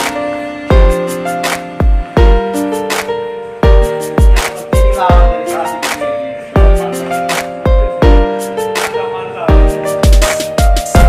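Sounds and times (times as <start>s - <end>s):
heavy bass drum beat: 9.5s - 11.0s.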